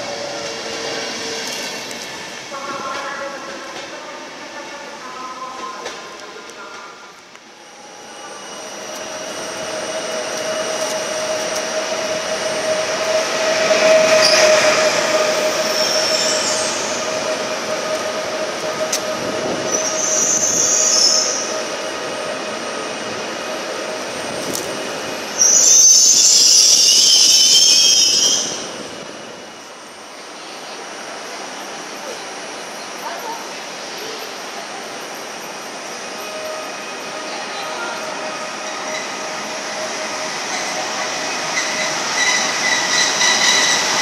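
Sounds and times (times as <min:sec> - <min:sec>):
electric train running whine: 0:07.5 - 0:26.8
wheels squealing: 0:36.2 - 0:44.0.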